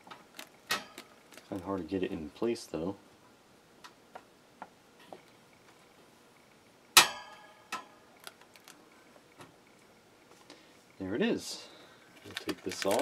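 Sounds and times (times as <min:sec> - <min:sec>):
loud snap with ring: 0:07.0 - 0:07.9
fan wire guards clicking: 0:12.2 - 0:13.0.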